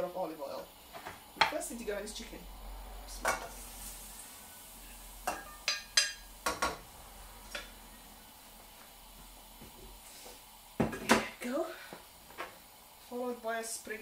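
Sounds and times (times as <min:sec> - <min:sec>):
plate and spoon clinking on pan: 0:05.2 - 0:06.8.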